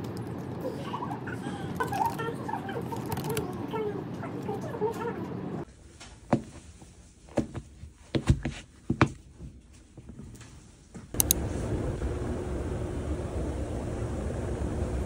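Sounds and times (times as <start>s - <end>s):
sneakers stepping on laminate floor: 7.3s - 9.5s
escalator rumbling with faint hum: 11.1s - 15.0s.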